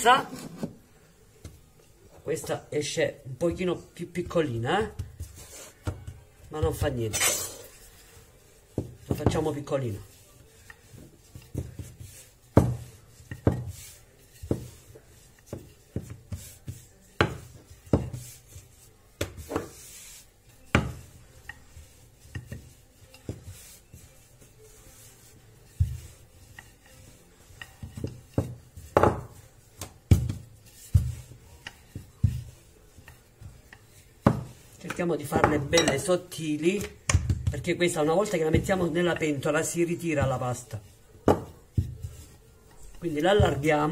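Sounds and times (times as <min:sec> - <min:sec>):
rolling pin knocking on worktop: 0:10.9 - 0:14.9, 0:15.5 - 0:18.4, 0:27.6 - 0:32.6, 0:34.2 - 0:34.6, 0:41.2 - 0:42.2.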